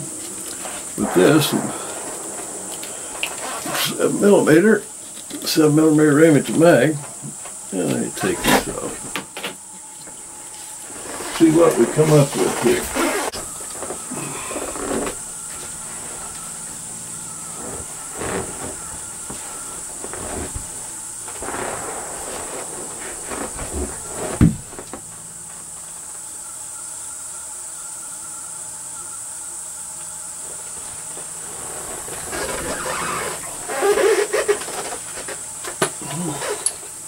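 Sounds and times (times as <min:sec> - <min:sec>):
high-pitched hiss: 0:00.0 - 0:37.0
sharp thump: 0:21.4 - 0:25.0.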